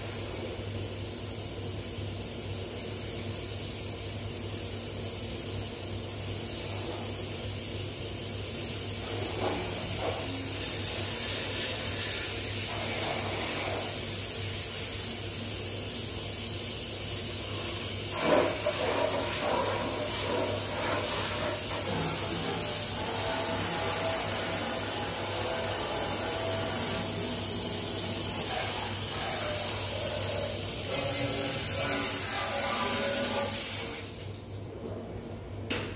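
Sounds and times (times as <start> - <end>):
steady hiss: 0.0 - 34.4
water spray on steel: 0.0 - 34.5.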